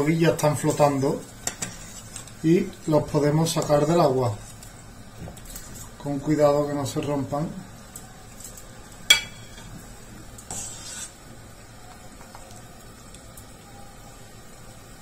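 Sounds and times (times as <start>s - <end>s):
water boiling and bubbling: 0.0s - 15.0s.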